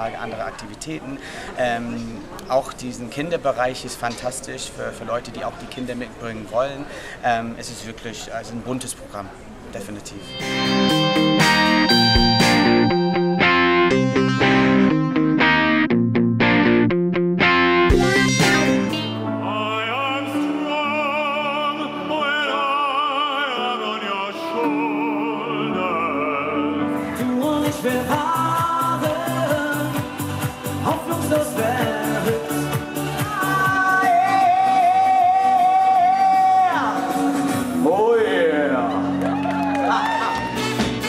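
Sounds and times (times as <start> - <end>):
person singing with vibrato: 17.9 - 38.5.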